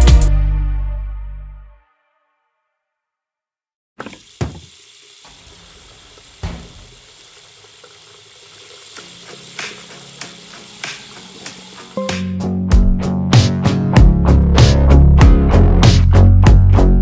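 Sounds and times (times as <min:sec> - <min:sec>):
shower water running: 0:04.0 - 0:12.4.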